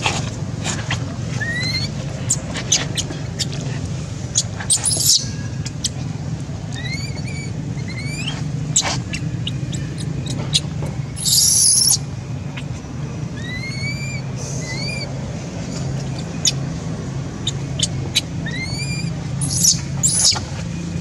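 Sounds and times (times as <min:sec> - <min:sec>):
baby monkey squeaking cries: 0:01.4 - 0:03.5, 0:04.3 - 0:06.0, 0:06.7 - 0:12.8, 0:13.4 - 0:15.2, 0:16.1 - 0:16.7, 0:17.4 - 0:20.4.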